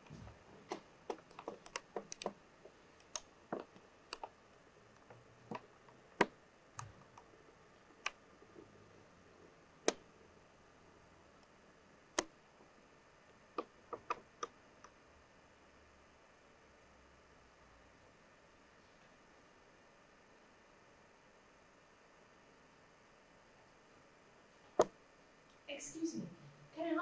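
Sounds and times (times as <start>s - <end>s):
sharp clicks and knocks: 0.0s - 4.4s, 13.6s - 15.0s
room hiss: 0.0s - 27.0s.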